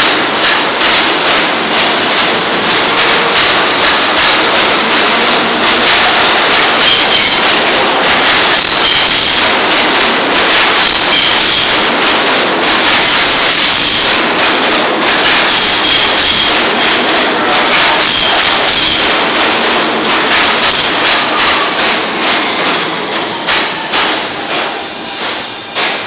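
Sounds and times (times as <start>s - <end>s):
wheels clattering over rail joints: 0.0s - 26.0s
metal wheel squeals: 6.8s - 7.5s, 8.4s - 9.6s, 10.8s - 11.8s, 13.0s - 14.2s, 15.5s - 16.6s, 17.9s - 19.3s, 20.6s - 21.6s.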